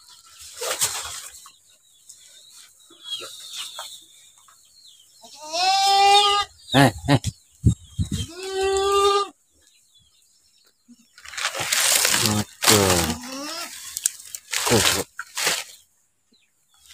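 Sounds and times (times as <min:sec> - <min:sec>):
goat bleating: 0:05.2 - 0:07.0, 0:08.2 - 0:09.4, 0:12.8 - 0:13.7.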